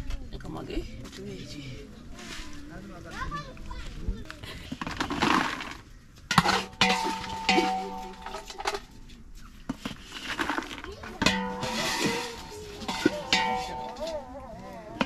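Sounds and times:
spatula scraping metal bowl: 9.9s - 14.2s.

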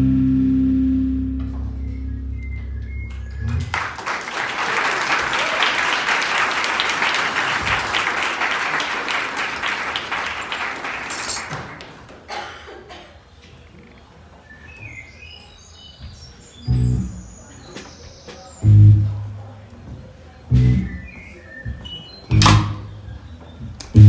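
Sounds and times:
band low note: 0.0s - 3.8s, 18.6s - 19.4s, 20.5s - 21.0s, 22.3s - 22.9s
audience applauding: 3.6s - 12.3s.

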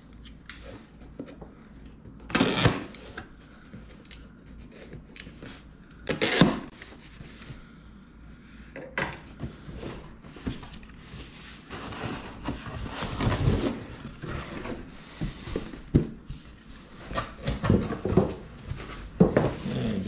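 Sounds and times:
cardboard flaps scraping and rustling: 9.6s - 20.0s.

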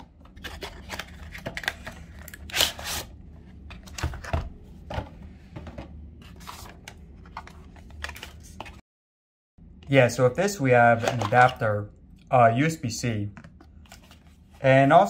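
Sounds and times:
cardboard and plastic packaging handled: 0.2s - 8.8s, 13.6s - 15.0s.

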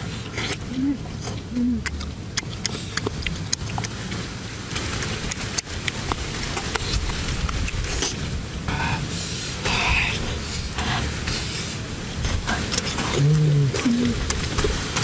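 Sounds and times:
people chewing and tearing chicken: 0.0s - 9.0s, 12.2s - 15.0s
steady low rumble: 0.0s - 15.0s.

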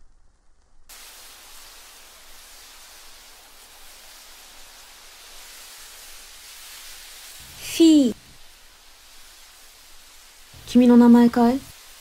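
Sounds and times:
steady ambient hiss: 0.0s - 12.0s.

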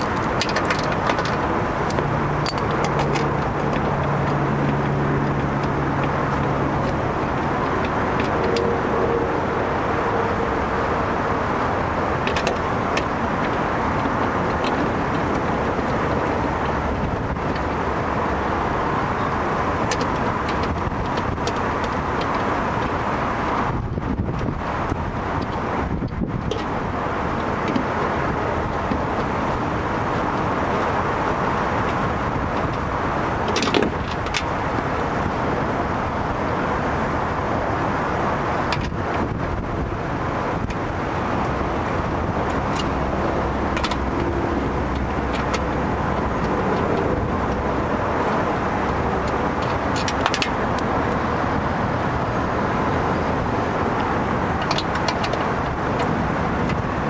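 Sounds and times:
wiring connectors clicking: 0.0s - 8.9s, 53.4s - 56.9s
road traffic noise: 0.0s - 57.0s.

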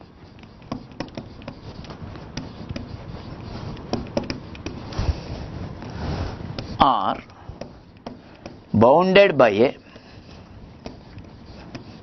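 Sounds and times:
marker scratchy strokes: 0.0s - 12.0s
marker ticking on whiteboard: 0.3s - 4.9s, 6.5s - 8.7s, 10.8s - 12.0s.

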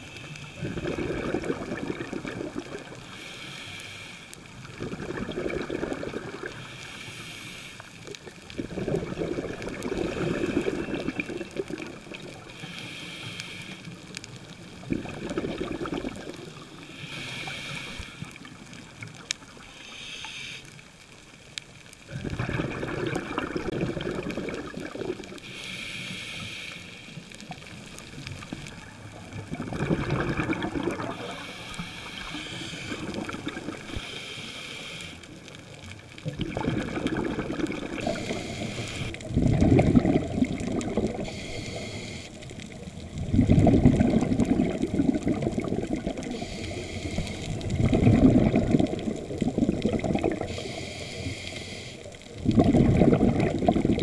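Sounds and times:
regulator inhale hiss: 0.0s - 1.0s, 2.9s - 4.6s, 6.5s - 8.2s, 12.4s - 14.3s, 16.7s - 19.0s, 19.6s - 21.0s, 25.4s - 28.8s, 31.1s - 35.8s, 38.0s - 39.3s, 41.0s - 42.8s, 46.2s - 47.8s, 50.3s - 52.4s
exhaled bubbles rumbling: 0.0s - 3.0s, 4.5s - 6.7s, 8.1s - 12.5s, 14.1s - 17.0s, 22.0s - 25.4s, 27.4s - 34.1s, 35.4s - 41.5s, 42.4s - 50.7s, 52.2s - 54.0s.

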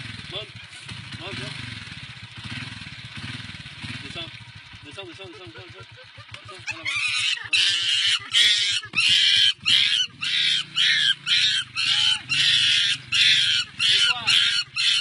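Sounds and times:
motorcycle engine idling: 0.0s - 15.0s
young primate shrieking: 6.6s - 15.0s.

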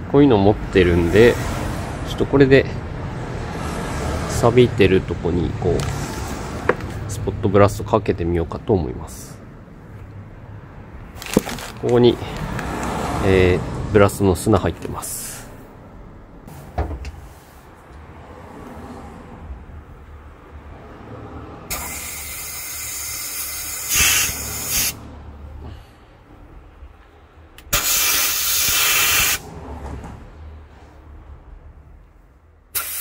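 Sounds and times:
sandblaster hissing: 21.7s - 25.0s, 27.7s - 29.4s, 32.8s - 33.0s.

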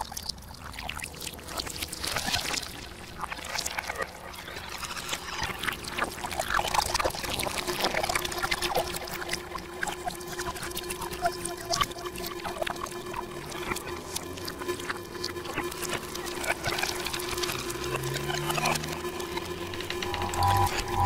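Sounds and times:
milk pouring and bubbling: 0.0s - 20.0s
low steady tone: 9.2s - 21.0s.

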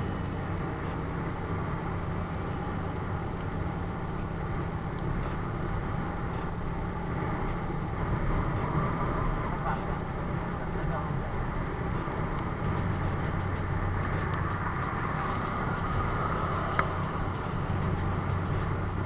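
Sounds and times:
motorcycle engine running: 0.0s - 7.6s, 12.5s - 19.0s
road noise rushing: 0.0s - 19.0s.

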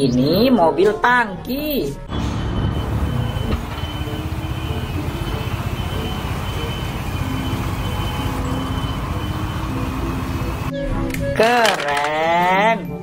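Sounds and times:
truck engine running: 2.1s - 10.7s
water spray hissing on road: 4.0s - 10.7s.

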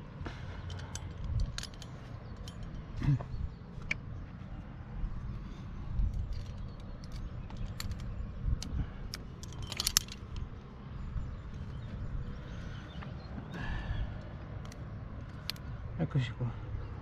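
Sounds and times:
low steady rumble: 0.0s - 17.0s
climbing hardware clinking: 0.2s - 4.4s, 5.9s - 13.2s, 14.2s - 15.8s.

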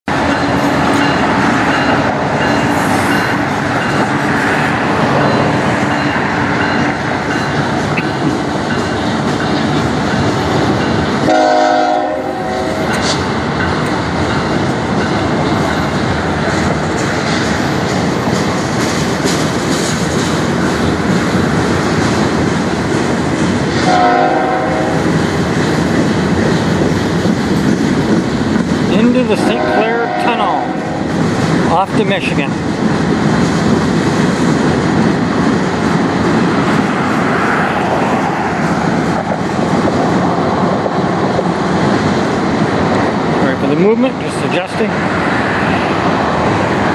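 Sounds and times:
freight train rolling on track: 0.0s - 46.9s
train horn: 11.2s - 12.9s, 23.8s - 25.1s, 29.3s - 31.1s.

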